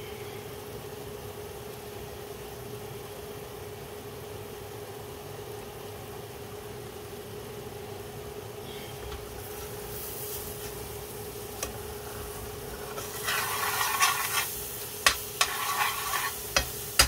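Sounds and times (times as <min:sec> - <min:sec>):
kitchen appliance humming: 0:08.7 - 0:17.0.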